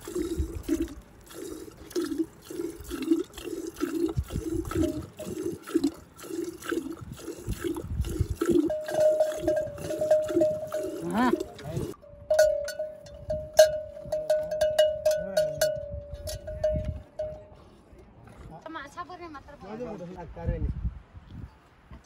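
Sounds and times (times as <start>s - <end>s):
milk squirting into a pail: 0.0s - 12.0s.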